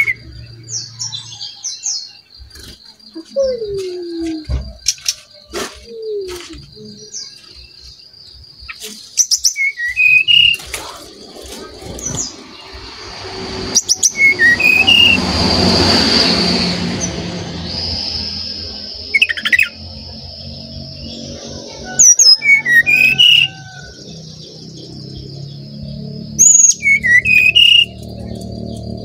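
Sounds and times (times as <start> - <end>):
bird whistled song: 0.0 - 8.0, 8.6 - 11.0, 13.7 - 15.2, 17.6 - 29.0
rush of noise: 10.3 - 24.6.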